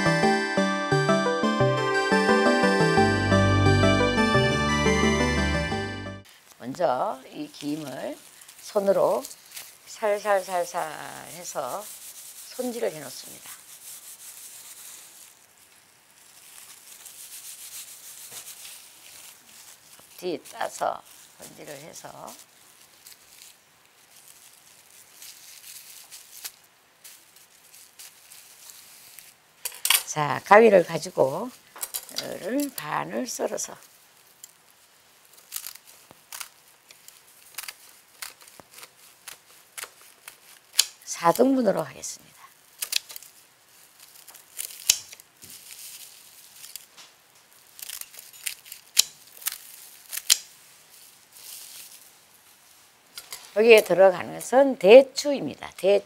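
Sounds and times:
dried seaweed sheets crackling: 0:06.2 - 0:56.0.

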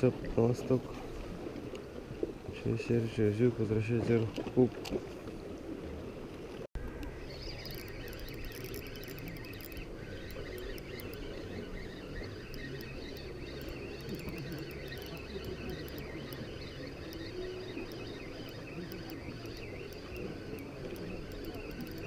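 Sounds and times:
sea noise: 0:00.0 - 0:22.0
wind: 0:00.0 - 0:22.0
fishing reel clicks: 0:07.5 - 0:22.0.

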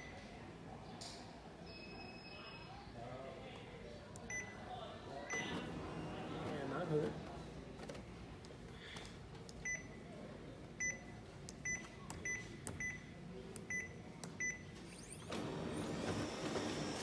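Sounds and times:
touch panel beeps: 0:04.2 - 0:04.6, 0:05.3 - 0:06.2, 0:09.6 - 0:10.0, 0:10.8 - 0:14.7
copier mechanism running: 0:14.7 - 0:17.0.

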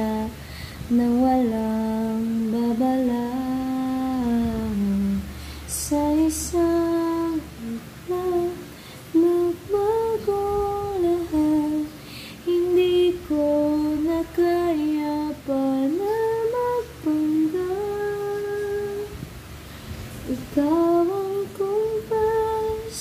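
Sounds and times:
woman humming a gentle melody: 0:00.0 - 0:19.4, 0:20.1 - 0:23.0
short breaths: 0:00.4 - 0:00.9, 0:05.3 - 0:05.7, 0:12.0 - 0:12.4, 0:19.5 - 0:20.2.

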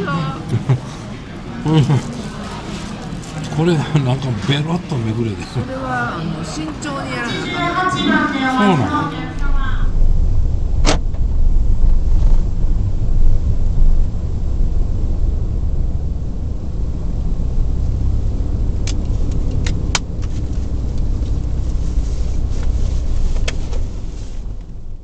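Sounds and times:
car engine and road drone: 0:00.0 - 0:25.0.

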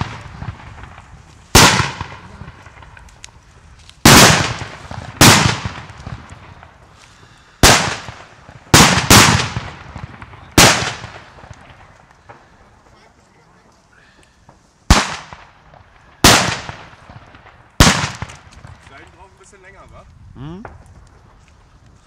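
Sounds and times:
firecracker bangs with echo: 0:00.0 - 0:03.0, 0:04.0 - 0:06.8, 0:07.6 - 0:12.5, 0:14.5 - 0:19.3.

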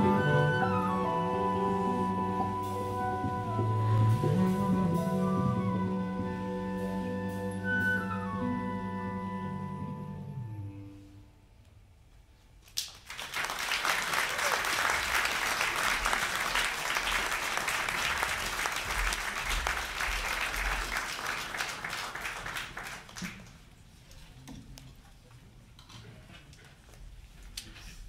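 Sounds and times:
audience applauding: 0:12.8 - 0:23.7.

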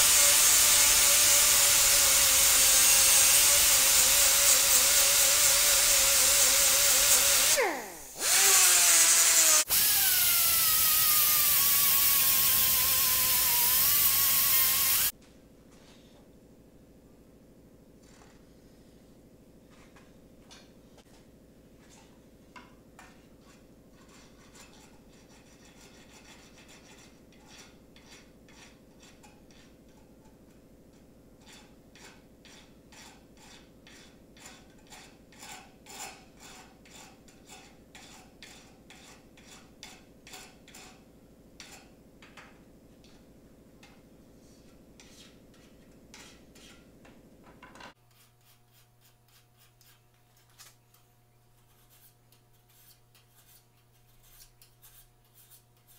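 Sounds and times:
file rasping on steel: 0:00.0 - 0:15.1, 0:23.4 - 0:30.4, 0:31.4 - 0:41.0, 0:41.6 - 0:41.9, 0:44.6 - 0:46.9, 0:48.0 - 0:50.7, 0:51.6 - 0:55.9.

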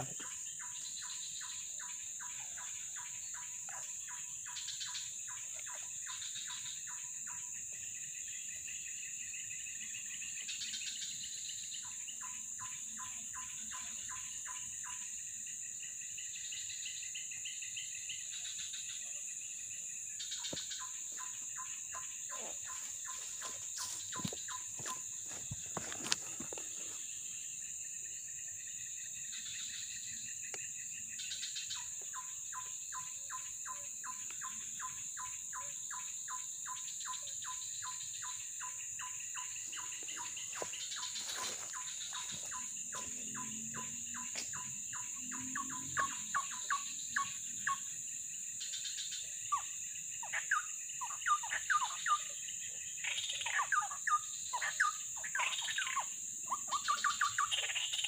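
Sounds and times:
high-pitched insect drone: 0:00.0 - 0:58.0
birds calling: 0:20.2 - 0:27.6, 0:31.3 - 0:47.8.

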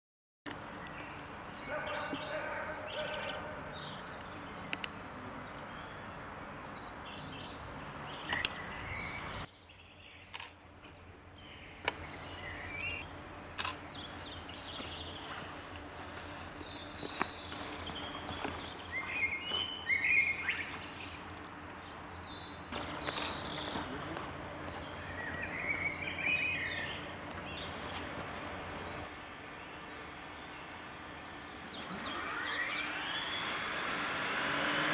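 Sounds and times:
small birds chirping: 0:00.5 - 0:34.9.

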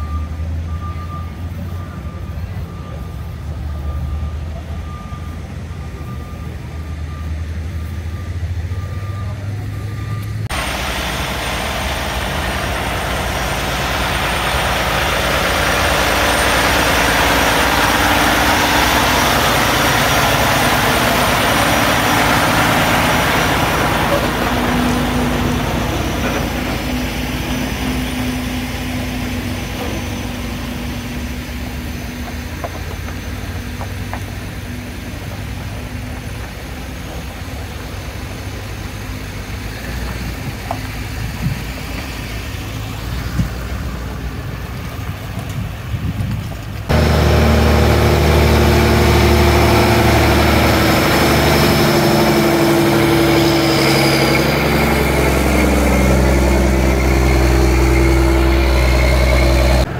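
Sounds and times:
loud diesel engine running: 0:00.0 - 0:46.2, 0:46.8 - 0:59.9
diesel truck engines idling: 0:00.0 - 0:59.9.

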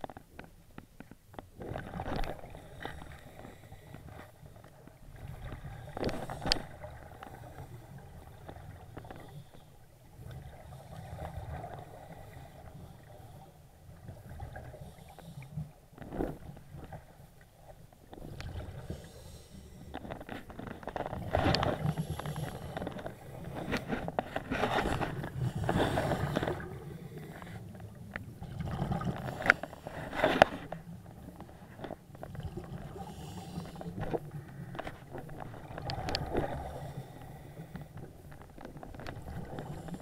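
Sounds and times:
diver breathing through regulator: 0:18.6 - 0:20.0, 0:21.6 - 0:27.8, 0:32.9 - 0:34.8, 0:36.2 - 0:38.0
exhaled bubbles: 0:28.3 - 0:29.6.

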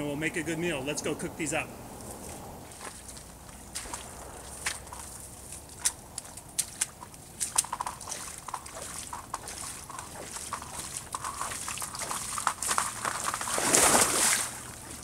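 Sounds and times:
boots sloshing through icy water: 0:02.3 - 0:15.0
ice crackling: 0:07.4 - 0:14.7.

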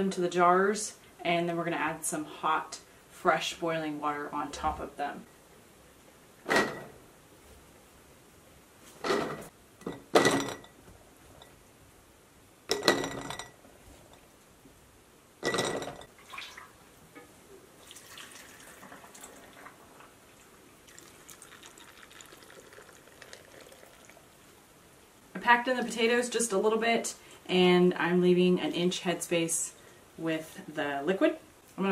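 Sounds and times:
potatoes clunking against glass jars: 0:12.7 - 0:13.6
water trickling into jars: 0:15.9 - 0:16.8, 0:17.8 - 0:24.4.

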